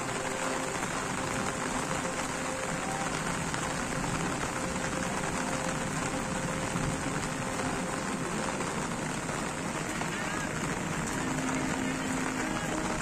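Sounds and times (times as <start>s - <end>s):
rain on wet ground: 0.0s - 13.0s.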